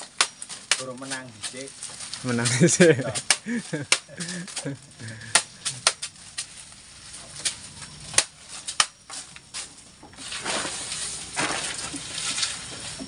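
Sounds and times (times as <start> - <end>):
leaves rustling: 0.0 - 13.0
machete chopping leaves: 0.0 - 13.0.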